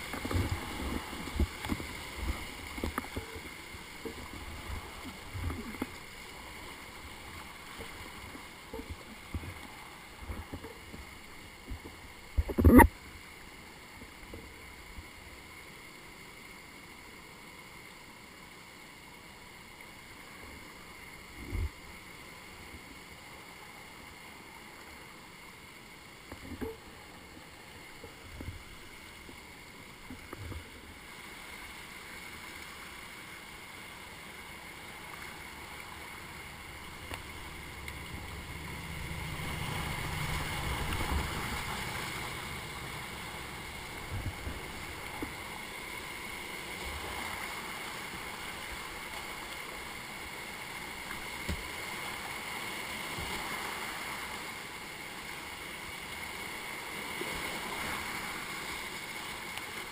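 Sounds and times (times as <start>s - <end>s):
whitewater rushing: 0.0s - 14.8s, 19.5s - 59.9s.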